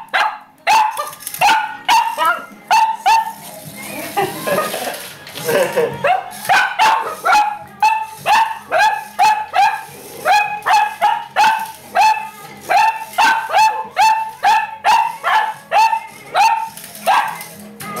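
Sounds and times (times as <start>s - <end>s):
dog barking sharply: 0.1s - 3.3s, 6.5s - 12.2s.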